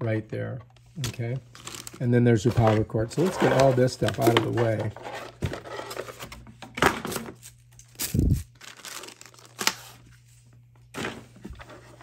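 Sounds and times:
plastic packaging crinkling: 1.5 - 4.8, 7.8 - 10.0.

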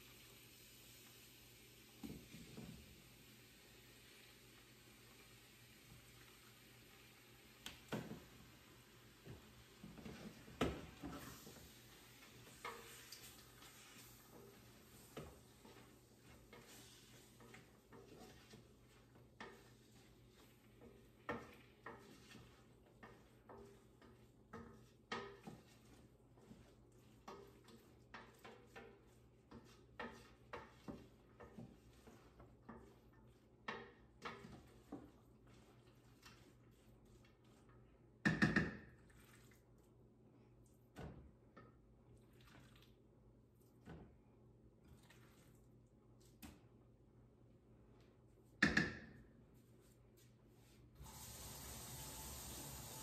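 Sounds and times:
utensil tapping a metal pot: 23.0 - 25.6.

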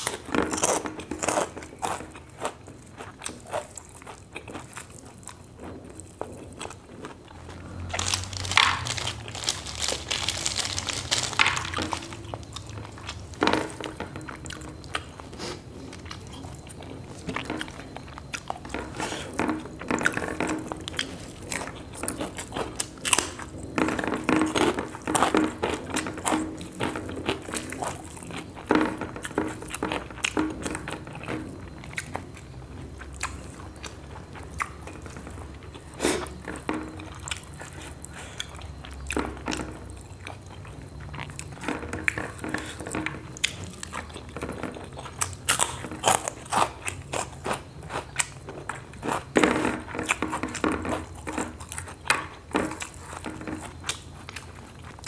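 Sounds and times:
person chewing and crunching food: 0.0 - 55.0
plastic bag rustling: 6.0 - 17.4.

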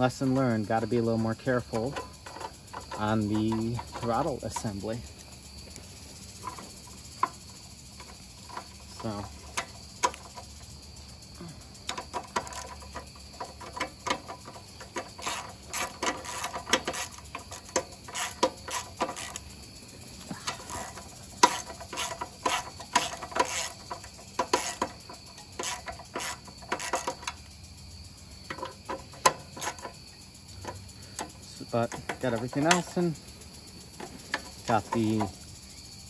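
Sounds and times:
metal tools clicking and knocking: 0.8 - 5.1, 11.8 - 19.6, 20.2 - 27.5, 28.4 - 33.3, 33.9 - 35.5.

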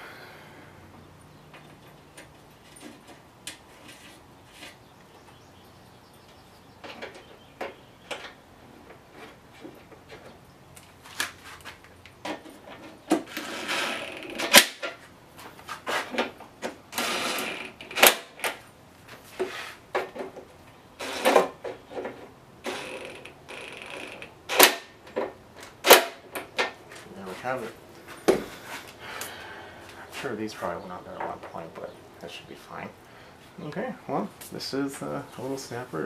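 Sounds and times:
impact driver rattling: 16.8 - 18.6, 22.7 - 25.1.

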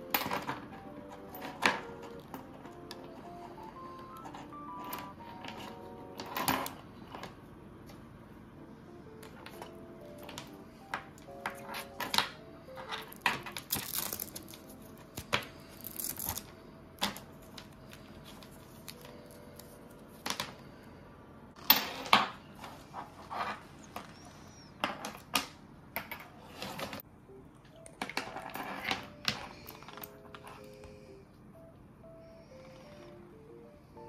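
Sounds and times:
cables rustling: 9.2 - 20.6.

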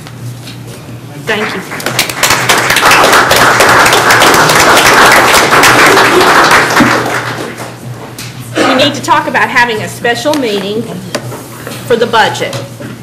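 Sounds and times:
crowd applauding: 1.3 - 7.7.

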